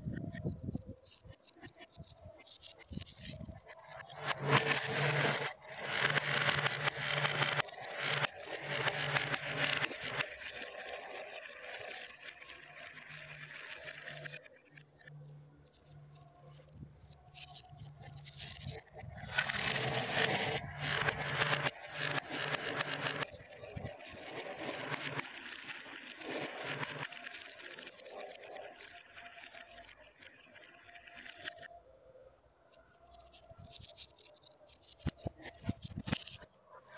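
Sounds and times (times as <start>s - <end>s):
marbles rattling through plastic track: 0.3s - 14.4s, 15.9s - 31.6s, 32.8s - 36.5s.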